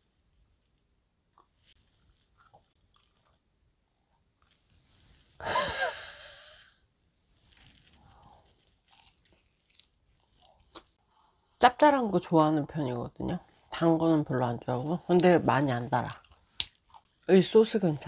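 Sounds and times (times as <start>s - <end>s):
soft chewing: 1.3s - 4.8s, 7.5s - 11.5s, 16.1s - 17.3s.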